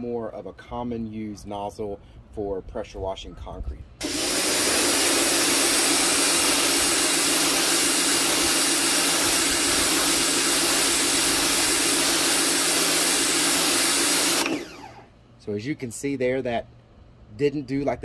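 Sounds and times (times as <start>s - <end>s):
water jet hissing on concrete: 4.0s - 14.4s
pressure washer pump humming: 4.0s - 15.2s.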